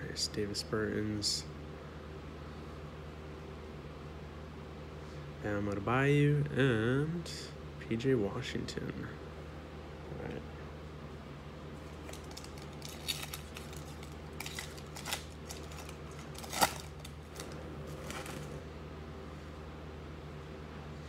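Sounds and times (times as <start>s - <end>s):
steady low hum: 0.0s - 21.0s
cards snapping while shuffled: 12.0s - 18.5s.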